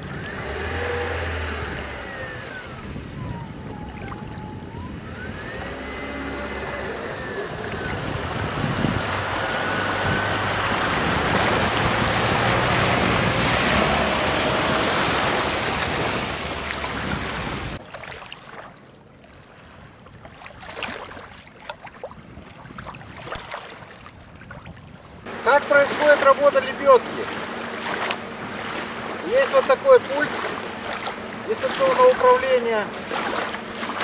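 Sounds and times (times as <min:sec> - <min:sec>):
car engine running: 0:00.0 - 0:17.8, 0:25.3 - 0:34.0
small waves lapping: 0:00.0 - 0:34.0
water splashing around wheels: 0:00.0 - 0:34.0.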